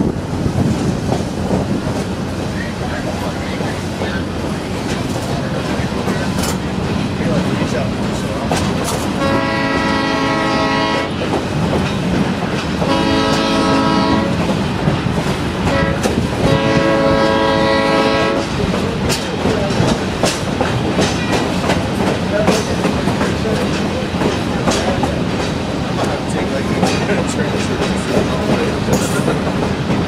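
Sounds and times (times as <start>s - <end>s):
moving train rumble: 0.0s - 30.0s
wheels clicking over rail joints: 0.4s - 9.4s, 17.7s - 30.0s
train horn blasts: 9.2s - 11.2s, 12.8s - 14.4s, 15.6s - 18.5s.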